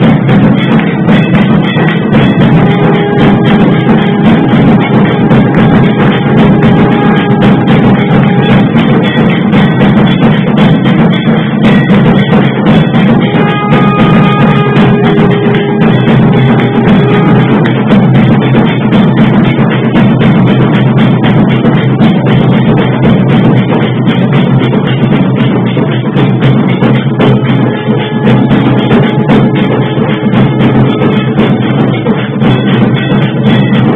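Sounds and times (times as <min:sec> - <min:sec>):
dense continuous drumming: 0:00.0 - 0:33.9
long held melody notes: 0:12.2 - 0:19.9.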